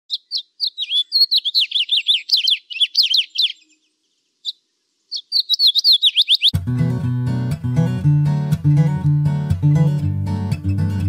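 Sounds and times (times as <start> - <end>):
sparrows chirping: 0.1 - 6.6.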